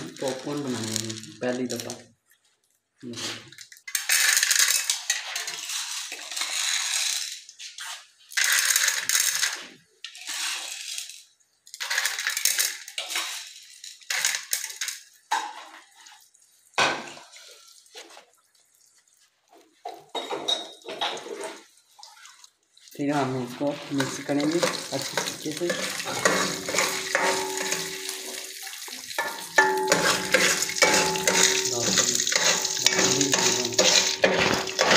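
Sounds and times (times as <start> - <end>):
popcorn kernels rattling in metal pot: 3.8 - 7.5, 8.3 - 9.6, 10.7 - 15.1, 23.8 - 34.9.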